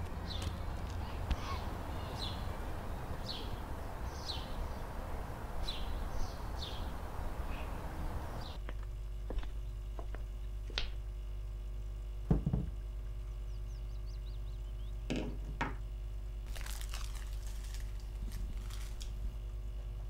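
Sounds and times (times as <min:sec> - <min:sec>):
steady low hum: 0:00.0 - 0:20.0
plastic bag crinkling: 0:16.5 - 0:19.2.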